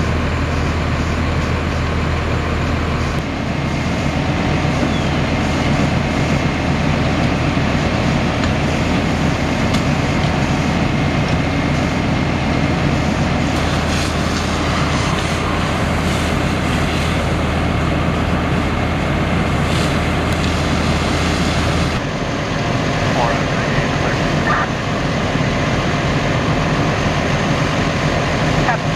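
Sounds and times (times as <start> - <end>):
diesel engine droning: 0.0 - 28.9
water hose hissing: 12.8 - 22.0.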